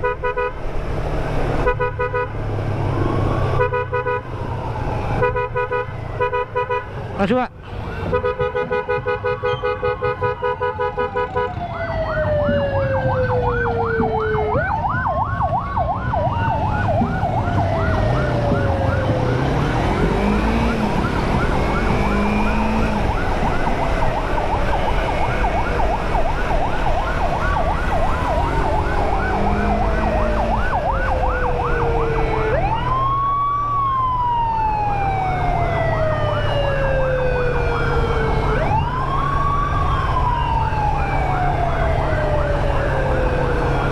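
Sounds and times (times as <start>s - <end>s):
wailing siren: 0.0s - 43.9s
pulsing horn-like siren tone: 1.6s - 7.0s, 7.8s - 43.9s
warbling siren yelp: 3.0s - 6.4s, 7.2s - 43.9s
motorcycle engine: 11.7s - 34.1s.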